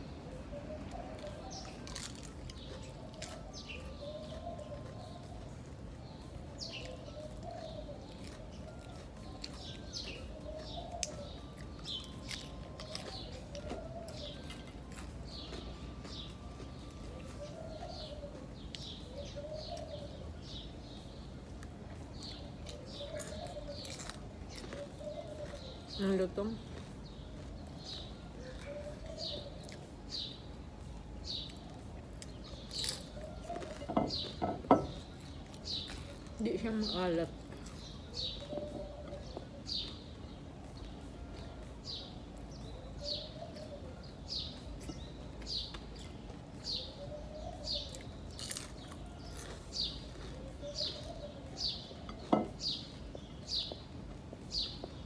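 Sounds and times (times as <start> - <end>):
small birds chirping: 0.0 - 55.0
dove cooing: 0.2 - 1.8, 2.8 - 5.6, 6.3 - 8.8, 9.7 - 12.0, 13.1 - 14.6, 16.9 - 20.3, 22.3 - 23.8, 24.8 - 26.0, 28.3 - 30.3, 38.0 - 39.9, 46.6 - 48.1, 50.3 - 52.8.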